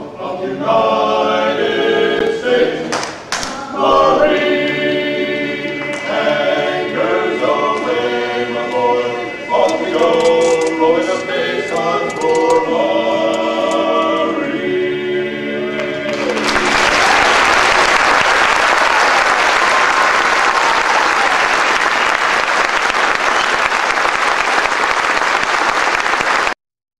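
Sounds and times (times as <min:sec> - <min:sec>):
vocal group singing in harmony: 0:00.0 - 0:17.9
audience applauding: 0:15.8 - 0:26.6.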